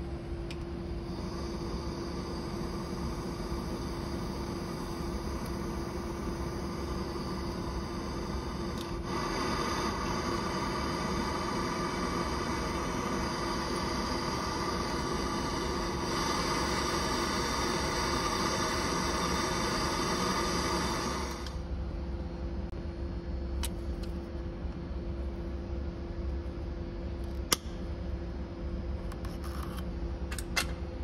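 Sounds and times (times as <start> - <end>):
steady hum: 0.0 - 31.0
gas torch flame hissing: 0.8 - 21.7.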